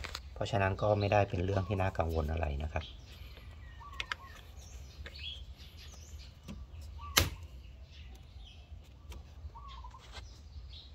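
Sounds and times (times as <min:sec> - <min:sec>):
bird chirps: 0:00.0 - 0:10.9
sharp click: 0:07.1 - 0:07.5.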